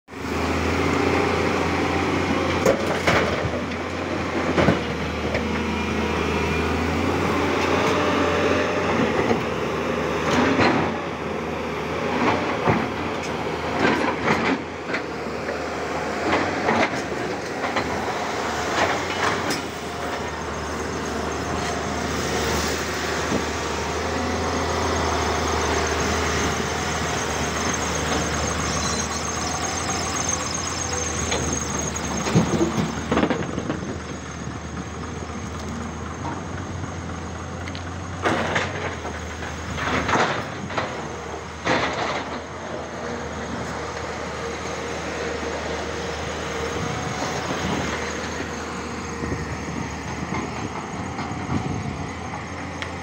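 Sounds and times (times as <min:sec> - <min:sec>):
excavator diesel engine running: 0:00.1 - 0:53.0
thin steady high tone: 0:25.5 - 0:32.5.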